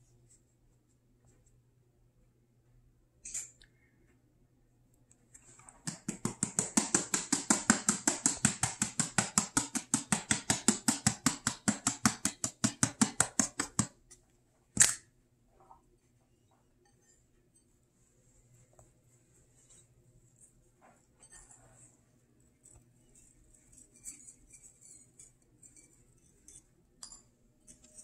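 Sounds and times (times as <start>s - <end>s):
shaker jar rattling: 5.8s - 13.9s.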